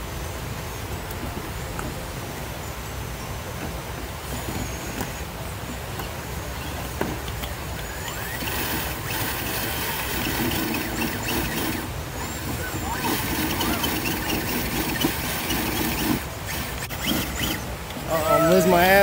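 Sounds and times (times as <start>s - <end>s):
electric motor and gears whining: 0.0s - 19.0s.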